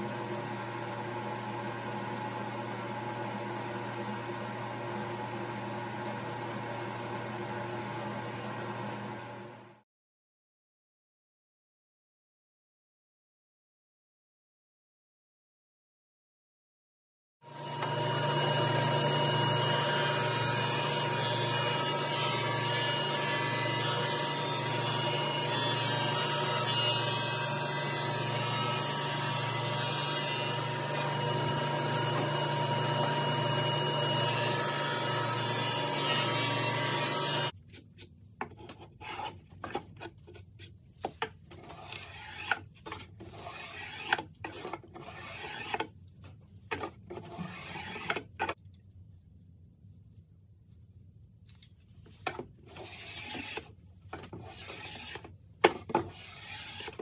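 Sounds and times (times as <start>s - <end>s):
table saw ripping a board: 17.5s - 37.5s, 41.7s - 45.9s, 46.8s - 48.6s, 52.3s - 57.0s
hand plane shaving wood: 38.5s - 45.9s, 46.7s - 48.6s, 52.2s - 57.0s.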